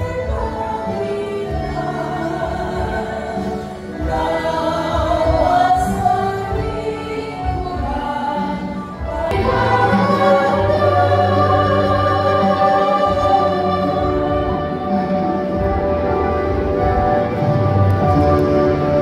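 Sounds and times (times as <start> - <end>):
group of voices singing: 0.0 - 17.4
low musical accompaniment: 0.0 - 19.0.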